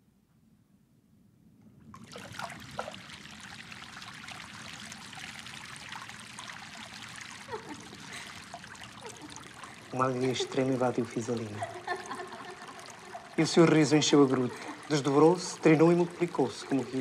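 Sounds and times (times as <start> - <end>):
water trickling over rocks: 1.9 - 17.0.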